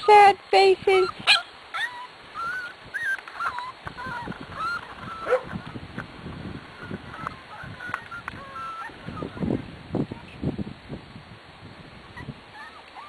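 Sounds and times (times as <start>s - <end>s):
puppies whining: 0.9s - 5.6s, 6.8s - 9.5s, 12.2s - 13.0s.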